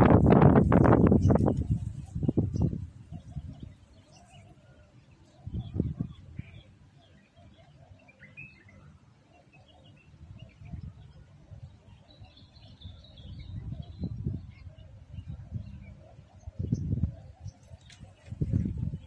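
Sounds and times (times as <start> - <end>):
small birds chirping: 0.1 - 19.0.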